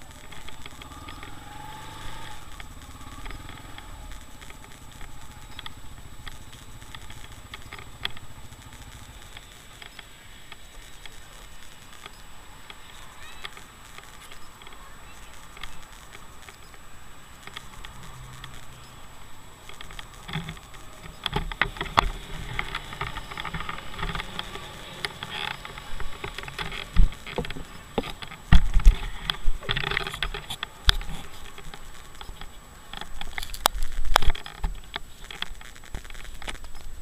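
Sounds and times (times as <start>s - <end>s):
loud thumps: 25.6s - 30.5s.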